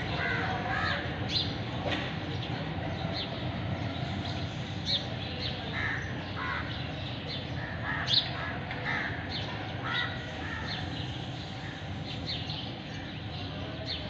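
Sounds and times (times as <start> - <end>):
steady low background noise: 0.0 - 14.0
crows cawing: 0.1 - 1.1, 5.8 - 6.8, 7.6 - 10.9.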